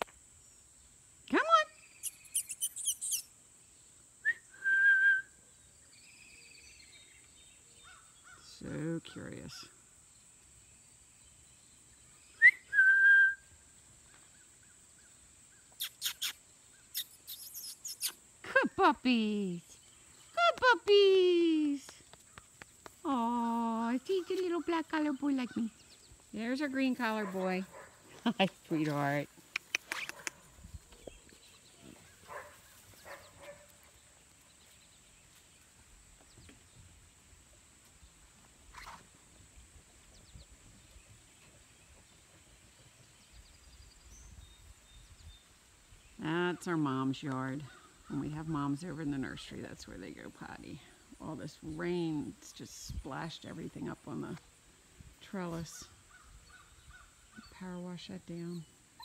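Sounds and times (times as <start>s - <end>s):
short sharp high chirps: 2.0s - 3.3s, 15.8s - 18.2s.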